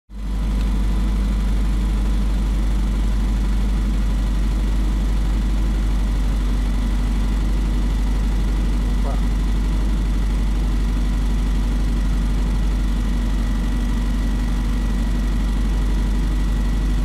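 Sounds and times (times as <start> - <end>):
vehicle engine idling: 0.1 - 17.0.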